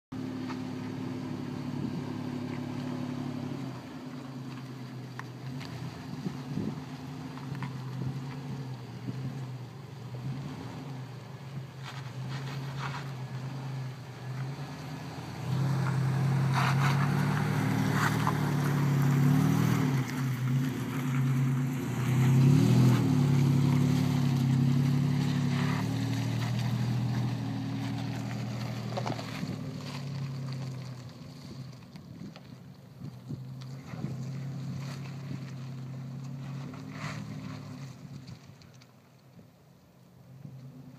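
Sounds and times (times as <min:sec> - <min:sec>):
vehicle engine running at low revs: 0:00.1 - 0:40.9
engine revving: 0:05.4 - 0:31.1.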